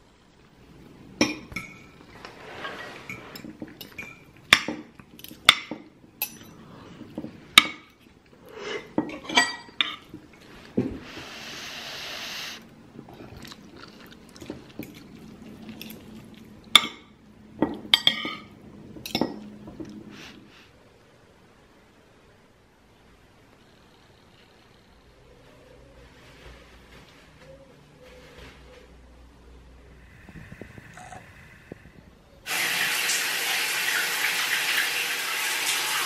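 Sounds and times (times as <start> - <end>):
steady hiss: 10.5 - 12.8, 29.7 - 36.0.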